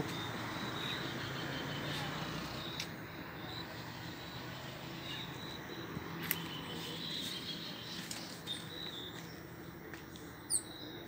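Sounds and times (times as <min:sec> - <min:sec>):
faint high-pitched chirps: 0:10.3 - 0:11.0.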